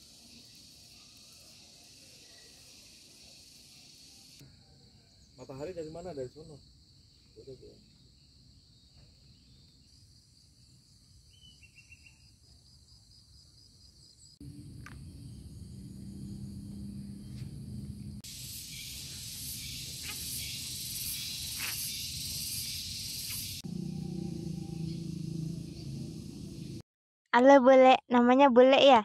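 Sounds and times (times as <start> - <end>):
insects trilling: 0.0 - 26.8
steady low hum: 14.4 - 26.8
loud high hiss: 18.2 - 23.6
rapid chirps: 18.2 - 26.8.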